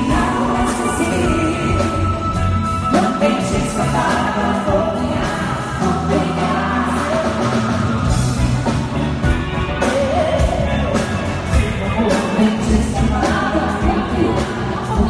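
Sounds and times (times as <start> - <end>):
person singing: 0.0 - 8.2
live pop band playing: 0.0 - 15.0.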